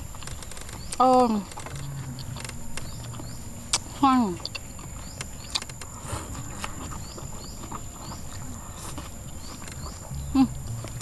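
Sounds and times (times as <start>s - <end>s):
wet chewing: 0.0s - 11.0s
person humming mm: 10.1s - 11.0s.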